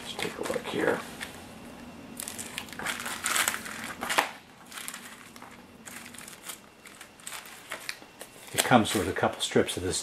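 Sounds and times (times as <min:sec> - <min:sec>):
plastic bag crinkling: 0:02.1 - 0:09.5.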